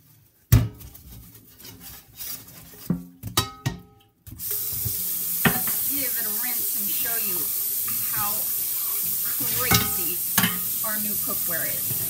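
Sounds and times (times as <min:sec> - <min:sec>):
frying pan clanking in metal sink: 0:03.2 - 0:06.1, 0:09.4 - 0:12.0
tap water running into sink: 0:04.4 - 0:12.0.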